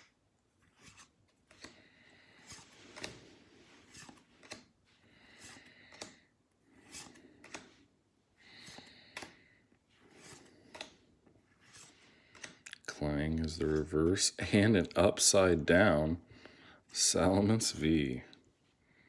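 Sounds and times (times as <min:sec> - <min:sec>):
trading cards sliding across stack: 0:00.7 - 0:07.9, 0:08.5 - 0:12.6.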